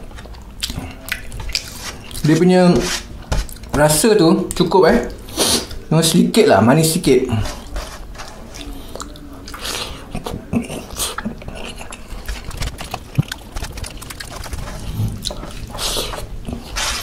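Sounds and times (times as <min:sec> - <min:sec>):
wet chewing and smacking: 0:00.0 - 0:02.4, 0:03.3 - 0:03.8, 0:07.5 - 0:17.0.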